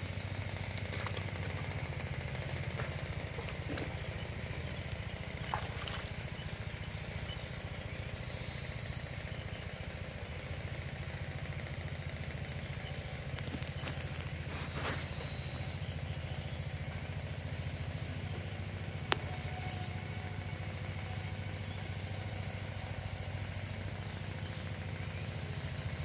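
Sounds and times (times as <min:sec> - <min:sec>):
small engine throbbing: 0:00.0 - 0:26.0.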